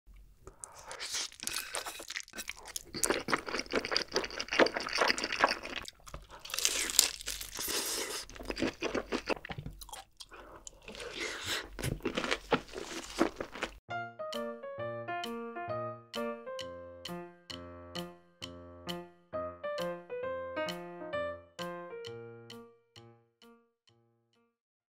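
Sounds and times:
wet chewing of noodles: 0:00.4 - 0:13.8
crunchy bites into fried chicken: 0:00.6 - 0:10.1.

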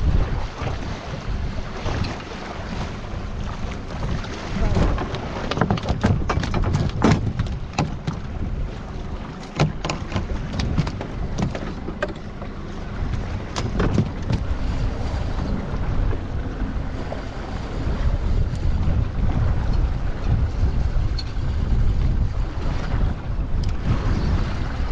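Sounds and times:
steady low rumble: 0:00.0 - 0:24.9
wind buffeting microphone: 0:00.0 - 0:24.9
knocks and clicks of fishing tackle: 0:04.8 - 0:08.3, 0:09.4 - 0:12.4, 0:13.1 - 0:14.5.

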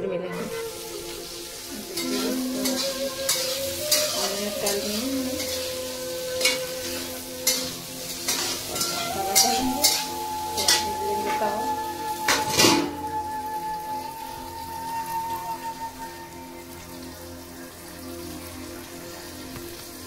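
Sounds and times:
vegetables sizzling in a pan: 0:00.4 - 0:20.0
metal spatula scraping a pan: 0:01.2 - 0:13.1.

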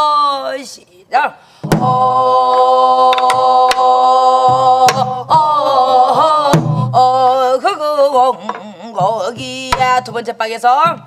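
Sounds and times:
barrel drum strokes: 0:01.6 - 0:03.9, 0:08.5 - 0:10.3
women singing folk song: 0:01.6 - 0:11.0.

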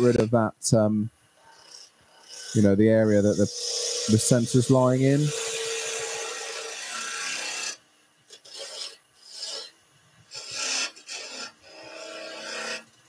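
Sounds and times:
lathe tool cutting wood: 0:10.3 - 0:12.9.

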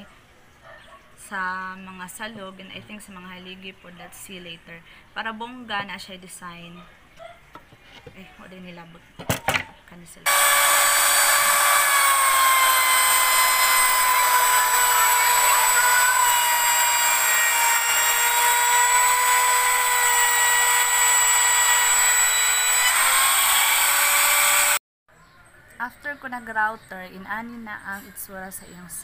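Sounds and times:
router whining while cutting wood: 0:10.3 - 0:24.8.

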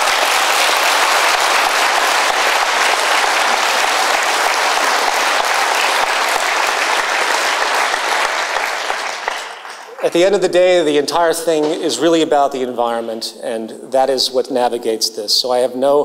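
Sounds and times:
large audience applauding: 0:00.0 - 0:10.4.

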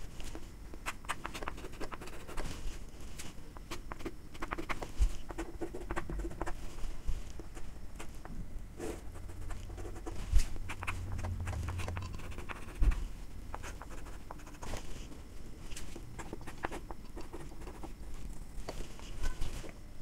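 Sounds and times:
chalk scratching on chalkboard: 0:00.9 - 0:02.5, 0:03.7 - 0:08.1, 0:08.8 - 0:14.9, 0:16.2 - 0:18.0.

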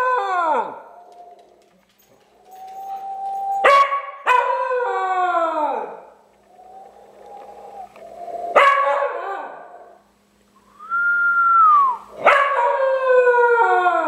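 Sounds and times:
dog howling: 0:00.0 - 0:10.0, 0:11.2 - 0:14.0
person whistling: 0:10.7 - 0:12.1.

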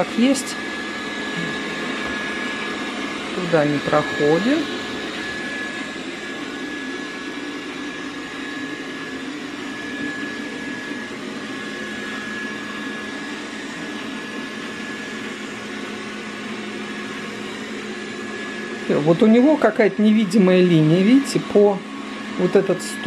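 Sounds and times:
robot vacuum whirring: 0:00.0 - 0:23.0.

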